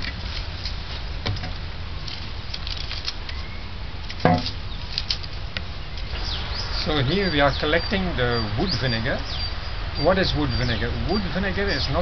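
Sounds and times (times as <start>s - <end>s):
dry sticks clattering: 4.0s - 5.4s
wood thump: 4.2s - 4.6s.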